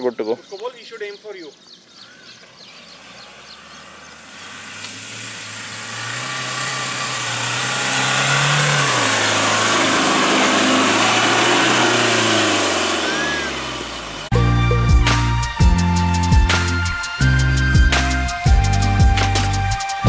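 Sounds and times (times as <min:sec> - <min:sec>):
diesel engine under load: 0:02.6 - 0:20.0
tyres churning loose sand: 0:02.9 - 0:14.3.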